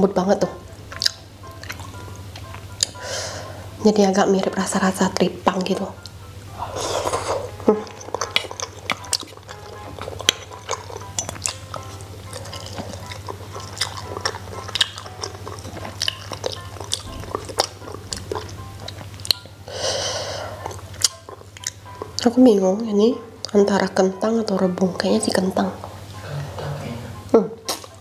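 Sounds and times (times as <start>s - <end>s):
quiet background music: 0.0s - 28.0s
person chewing: 0.9s - 3.3s, 6.0s - 22.3s, 25.9s - 28.0s
breathy rush: 6.5s - 7.5s.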